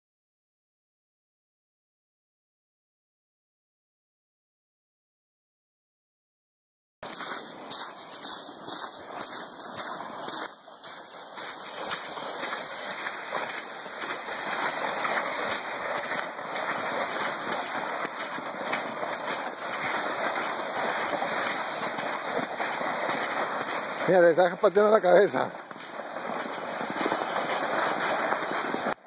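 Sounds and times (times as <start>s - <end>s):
footsteps in slush: 7.0s - 29.0s
sled scraping over slushy snow: 7.0s - 29.0s.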